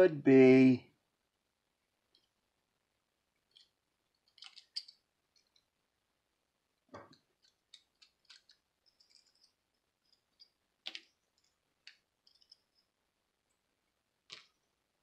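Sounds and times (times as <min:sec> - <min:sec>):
watch parts clicking and scraping: 0:03.5 - 0:05.7, 0:07.1 - 0:12.9.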